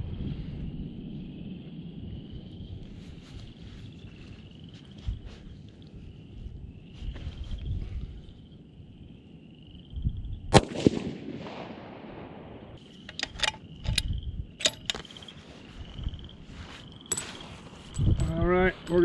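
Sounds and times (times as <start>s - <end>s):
rifle shot with echo: 10.5s - 12.8s
rifle action metallic clicks: 13.0s - 15.2s.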